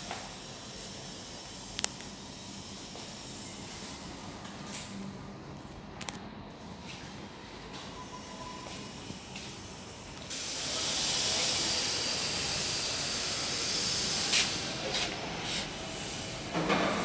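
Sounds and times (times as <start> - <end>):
rushing hiss of air: 0.0 - 4.2, 7.8 - 17.0.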